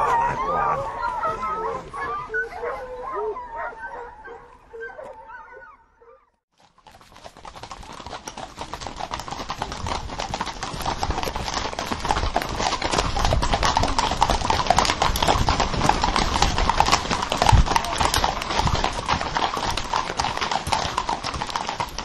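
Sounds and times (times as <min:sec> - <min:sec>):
hounds crying: 0:00.0 - 0:06.3
horses galloping hoofbeats: 0:06.5 - 0:22.0.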